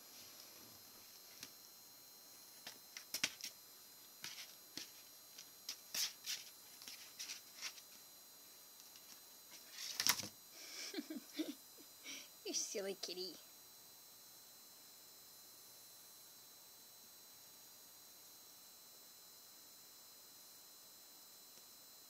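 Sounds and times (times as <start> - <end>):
claws scratching on cardboard: 4.2 - 8.0.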